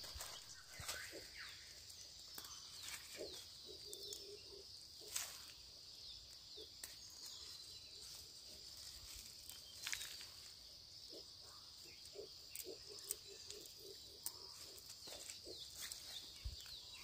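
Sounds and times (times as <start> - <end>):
leafy greens snapping: 2.3 - 3.1.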